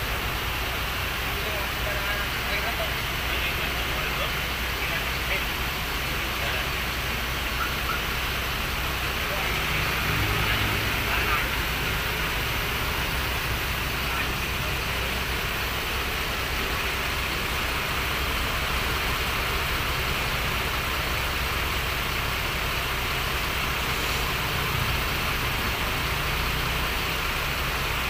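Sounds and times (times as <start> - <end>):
bus engine idling: 0.0 - 28.0
constant hiss: 0.0 - 28.0.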